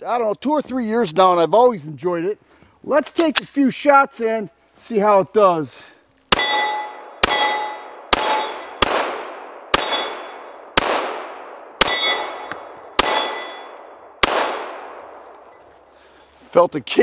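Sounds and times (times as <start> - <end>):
steel targets ringing: 6.3 - 8.9, 9.7 - 10.6, 11.7 - 14.7
pistol shots echoing: 6.3 - 15.6.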